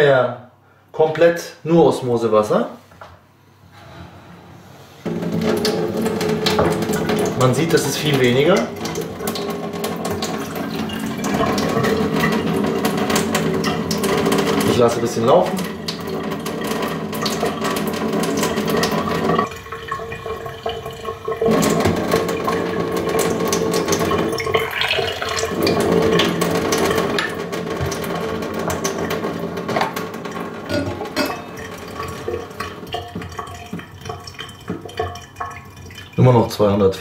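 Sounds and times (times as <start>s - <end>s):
water stream running into sink: 5.0s - 36.9s
glass clinking: 30.7s - 32.4s.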